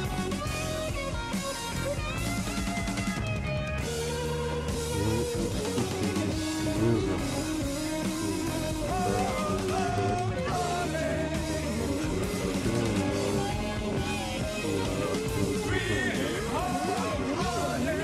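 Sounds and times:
rock song with guitar and vocals: 0.0 - 18.0.

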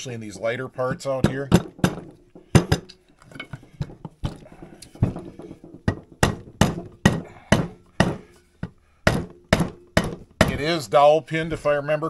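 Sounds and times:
hammer tapping on metal: 4.8 - 10.8.

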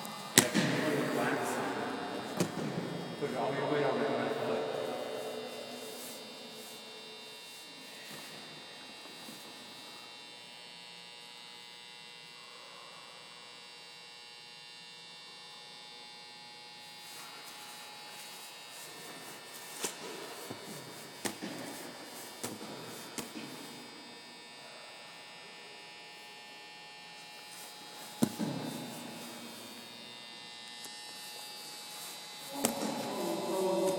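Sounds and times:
high electrical hum: 0.0 - 33.9.

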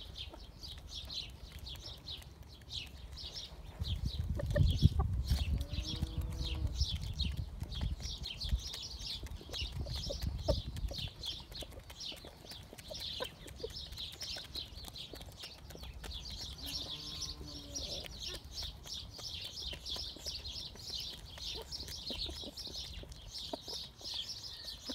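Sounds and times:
beaks pecking grain: 0.0 - 24.9
hen clucking: 3.5 - 7.4, 9.1 - 24.9.

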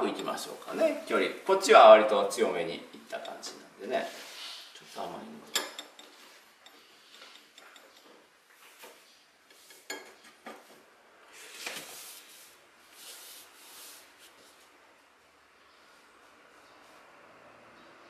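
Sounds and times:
brush clinking on ceramic dishes: 3.1 - 3.5, 4.8 - 8.2.

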